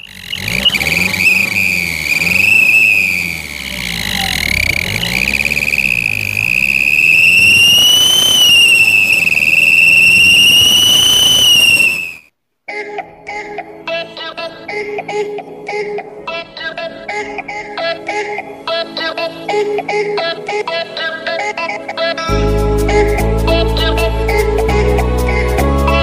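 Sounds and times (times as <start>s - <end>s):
car engine rumble: 0.0s - 12.2s
shrill exhaust whistle: 0.0s - 12.3s
music: 12.7s - 26.0s.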